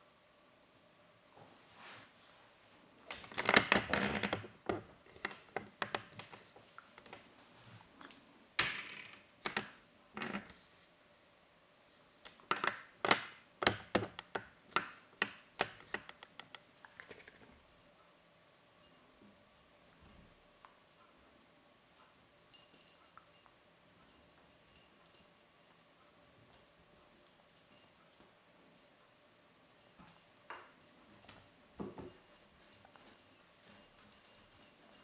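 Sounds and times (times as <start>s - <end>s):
kitten tapping and scrabbling: 12.6s - 17.8s.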